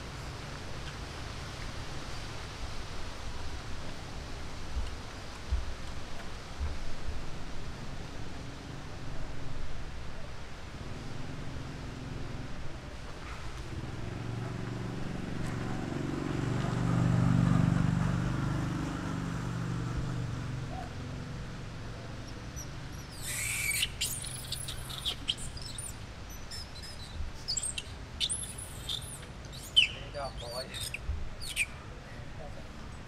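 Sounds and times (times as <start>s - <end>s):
high chirping squeaks: 22.6s - 31.8s.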